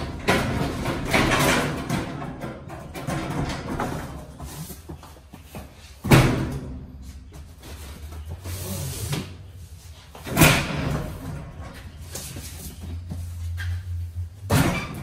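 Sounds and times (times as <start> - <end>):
boxes scraping and rustling: 3.6 - 6.1, 7.0 - 15.0.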